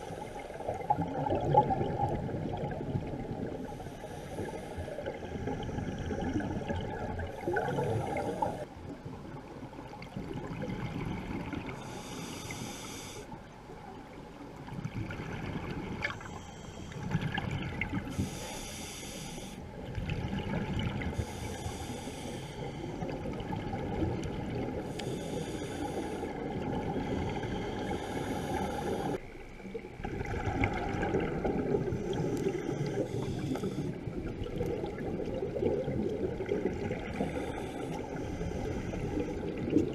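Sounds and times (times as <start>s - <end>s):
exhaled air bubbling: 0.0s - 9.0s, 19.7s - 39.9s
regulator hiss on inhalation: 11.8s - 13.4s, 18.1s - 19.6s, 21.2s - 23.0s, 24.9s - 26.4s, 27.0s - 29.2s, 32.0s - 34.0s.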